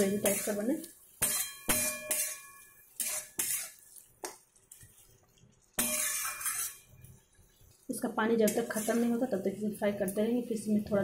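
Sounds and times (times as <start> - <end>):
spatula scraping pan: 0.0 - 5.1, 5.7 - 7.1, 8.4 - 9.4
metal spatula knocking on pan: 1.2 - 2.4.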